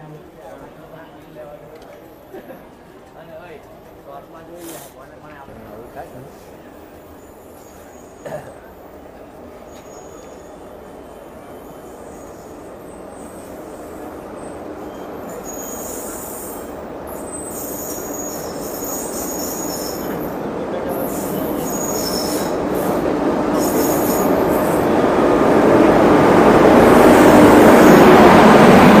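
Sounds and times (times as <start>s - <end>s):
train rumbling past: 0.0s - 29.0s
train wheel squeals: 6.9s - 8.2s, 9.6s - 24.9s.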